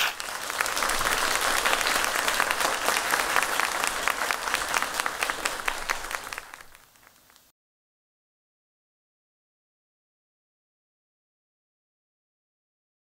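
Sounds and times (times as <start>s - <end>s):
audience applauding: 0.0s - 7.5s.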